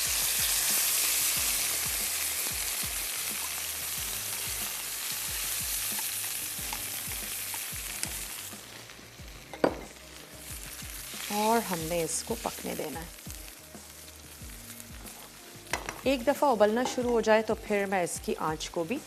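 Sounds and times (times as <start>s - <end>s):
stock hissing in hot pan: 0.0s - 16.0s.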